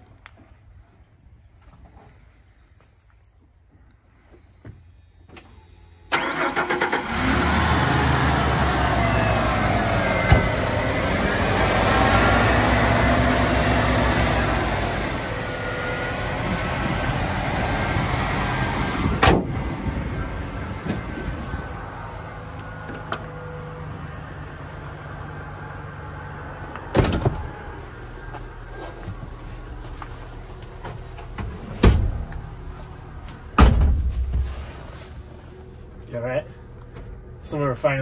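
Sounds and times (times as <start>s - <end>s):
car engine revving and idling: 6.2s - 33.6s
car door shutting: 10.2s - 10.7s, 19.1s - 19.5s
hood slamming shut: 10.2s - 10.7s, 19.1s - 19.6s, 26.9s - 27.6s, 31.2s - 32.4s, 33.5s - 34.7s.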